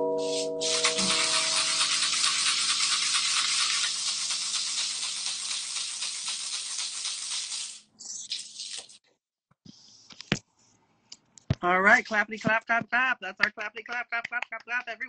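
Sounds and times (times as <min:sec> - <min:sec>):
guitar chord ringing: 0:00.0 - 0:01.9
gourd rattle shaken: 0:00.2 - 0:09.0.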